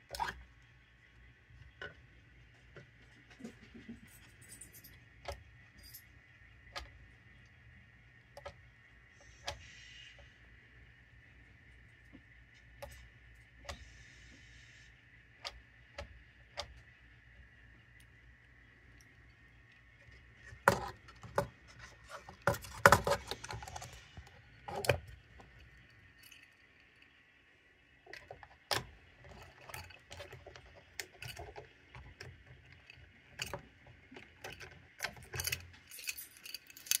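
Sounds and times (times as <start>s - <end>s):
lock and key ring rattling: 4.2s - 5.0s, 34.2s - 37.0s.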